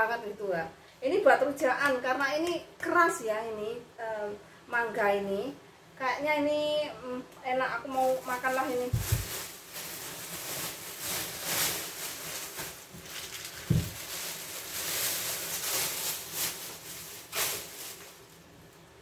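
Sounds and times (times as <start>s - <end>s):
plastic bags rustling: 7.8s - 19.0s.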